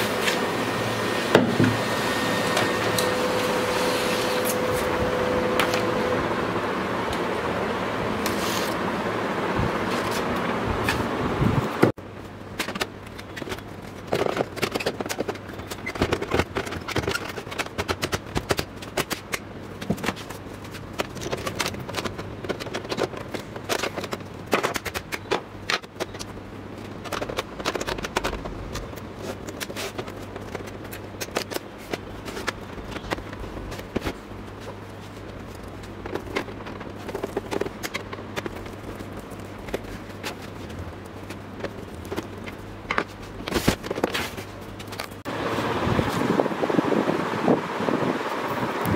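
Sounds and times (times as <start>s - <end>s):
laser printer whirring: 0.0s - 9.9s
plastic casing being handled: 12.5s - 45.2s.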